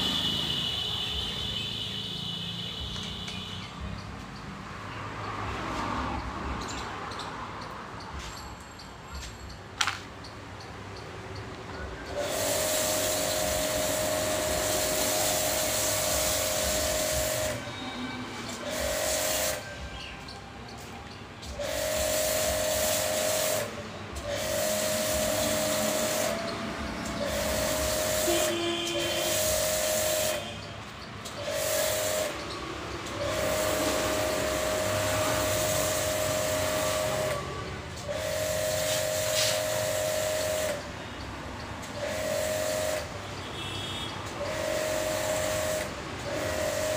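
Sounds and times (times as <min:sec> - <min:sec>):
pressure washer spraying: 0:12.1 - 0:17.7, 0:18.4 - 0:19.7, 0:21.5 - 0:41.2, 0:41.9 - 0:46.9.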